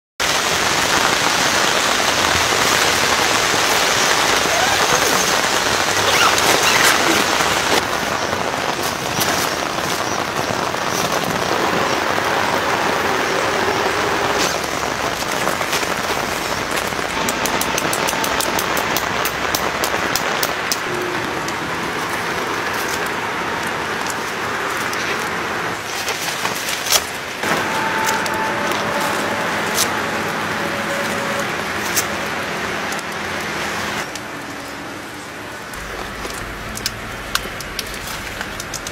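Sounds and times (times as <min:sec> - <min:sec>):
rain pattering: 0:00.2 - 0:38.9
sharp taps and drips: 0:16.7 - 0:20.9.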